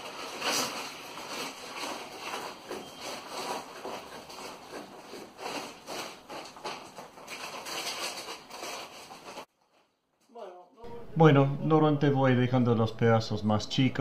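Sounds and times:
foil-faced insulation crinkling: 0:00.0 - 0:10.4.

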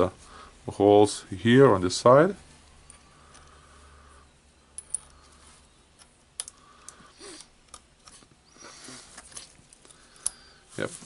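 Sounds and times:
small metal parts clicking: 0:04.6 - 0:08.3, 0:09.2 - 0:10.6
soft handling rustles: 0:07.9 - 0:11.0.

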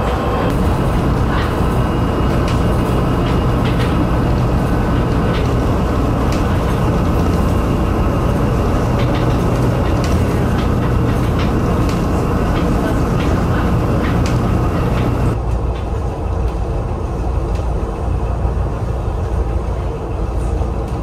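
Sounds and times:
road and tyre rumble: 0:00.0 - 0:15.4
rattles and clicks: 0:00.0 - 0:15.9.

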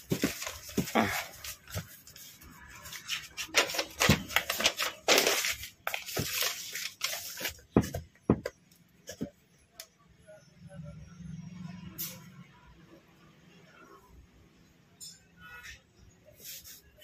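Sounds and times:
paper rustling and crinkling: 0:00.0 - 0:08.5.

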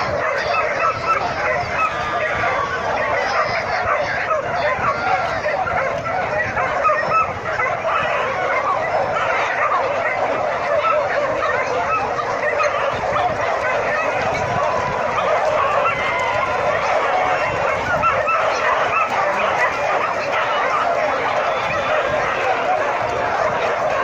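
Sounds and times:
dogs yelping and whining: 0:00.0 - 0:24.0.

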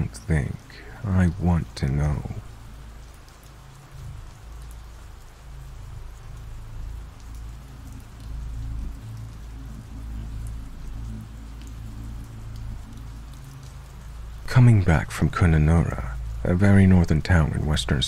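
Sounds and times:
steady rain falling: 0:00.0 - 0:18.0.

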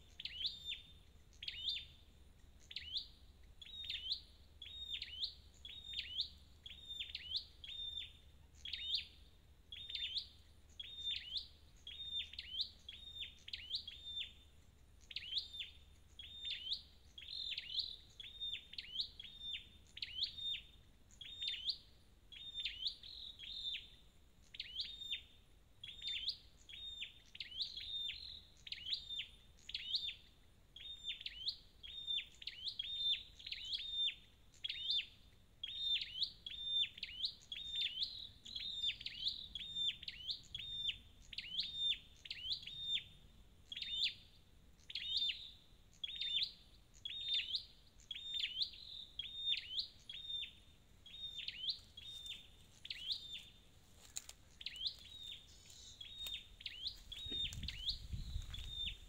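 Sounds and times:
bird chirping: 0:00.0 - 0:59.0.

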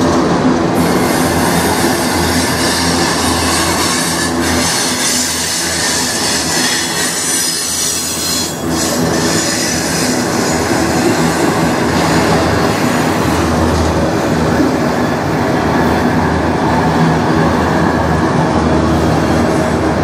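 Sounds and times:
train wheels rumbling on rails: 0:00.0 - 0:20.0
high-pitched wheel squeal: 0:00.9 - 0:11.5.

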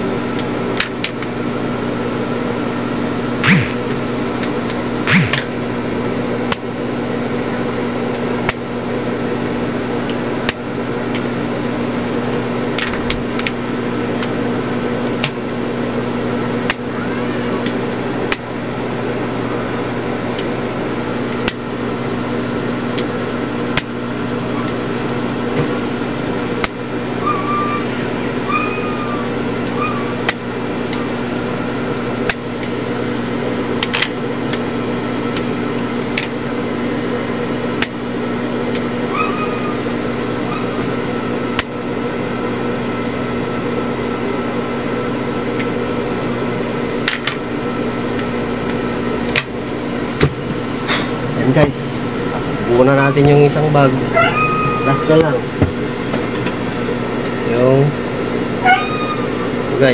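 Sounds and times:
sewing machine motor humming: 0:03.4 - 0:05.6.

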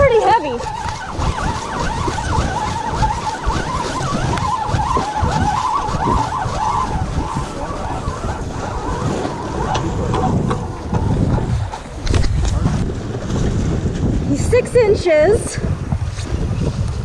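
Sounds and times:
fishing reel gears whirring: 0:00.0 - 0:11.2
surf: 0:00.0 - 0:17.0
wind: 0:00.0 - 0:17.0.

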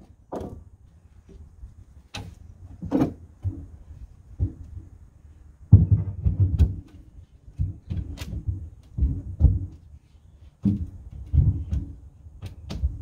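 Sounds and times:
plywood knocking against wooden hull: 0:00.0 - 0:00.6, 0:02.1 - 0:04.9, 0:05.7 - 0:09.8, 0:10.6 - 0:13.0.

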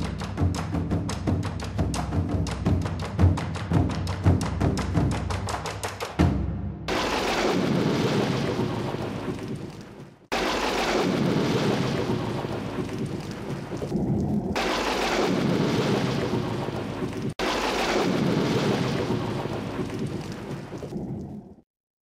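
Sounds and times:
rolling thunder rumbles: 0:06.9 - 0:21.6.

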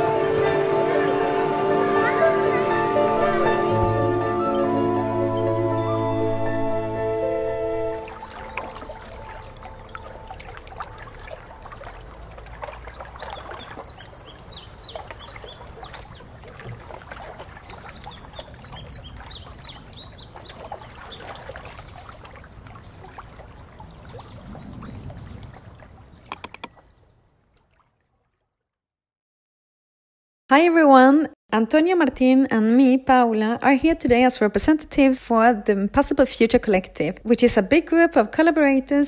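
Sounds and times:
water lapping and trickling: 0:00.0 - 0:28.8
small birds chirping: 0:12.8 - 0:16.2.

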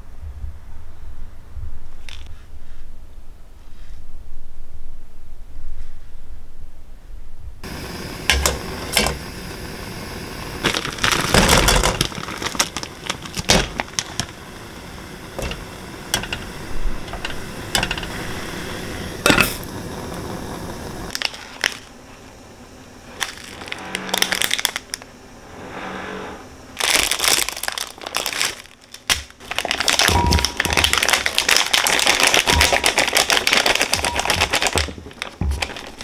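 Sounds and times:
steady hiss: 0:00.0 - 0:36.0
plastic packet crinkling: 0:10.6 - 0:14.4, 0:21.1 - 0:21.9, 0:23.2 - 0:25.0, 0:26.8 - 0:36.0
metal basket clinking on pot: 0:29.9 - 0:31.1.

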